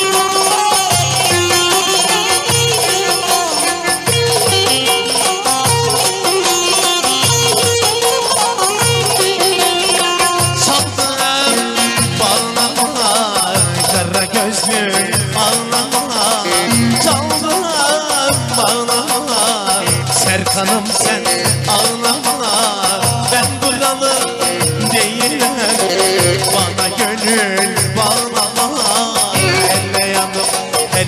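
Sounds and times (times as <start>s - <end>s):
wavering lead melody: 0.0s - 13.0s.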